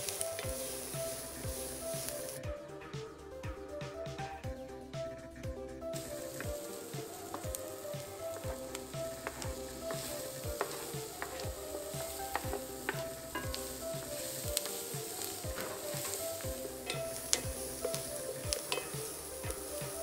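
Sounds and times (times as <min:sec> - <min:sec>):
onion sizzling in a frying pan: 0:00.0 - 0:02.4, 0:05.9 - 0:20.0
wooden spatula scraping a pan: 0:06.0 - 0:20.0.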